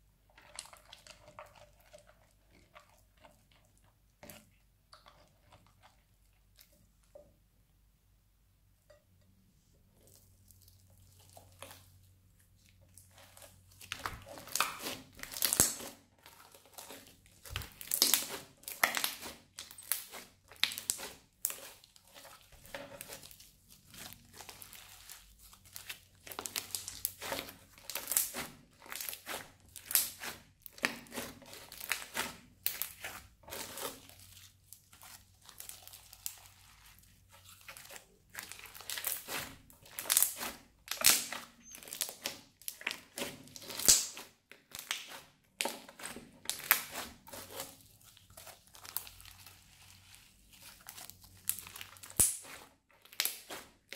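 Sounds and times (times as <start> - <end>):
slime crackling and popping: 12.6 - 53.9.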